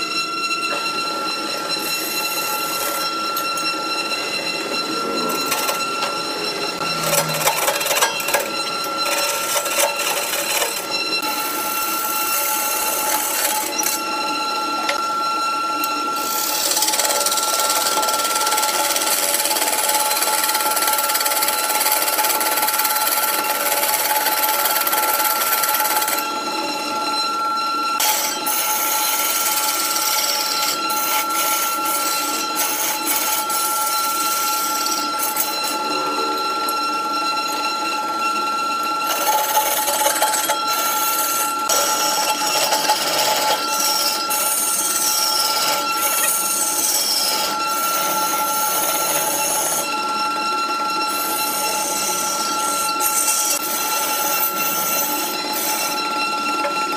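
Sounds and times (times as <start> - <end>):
wood lathe whine: 0.0 - 56.9.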